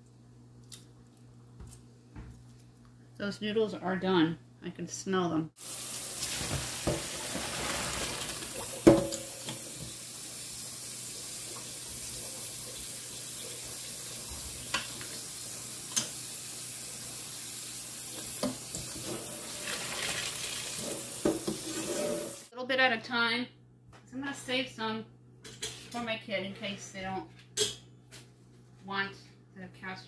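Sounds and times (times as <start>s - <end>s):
pasta water poured into colander: 5.6s - 10.3s, 19.1s - 22.2s
tap water running into a sink: 5.6s - 16.3s, 18.0s - 22.4s.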